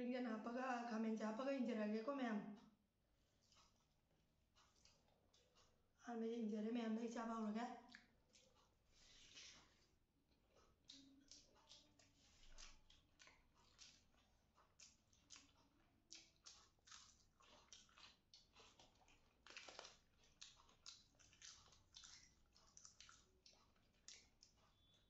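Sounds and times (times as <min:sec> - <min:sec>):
mouths chewing food: 0:03.2 - 0:06.0, 0:07.8 - 0:25.0.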